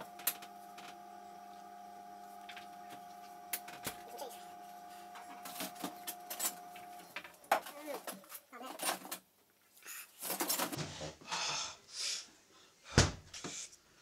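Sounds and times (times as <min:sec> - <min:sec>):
steady electrical hum: 0:00.0 - 0:09.4.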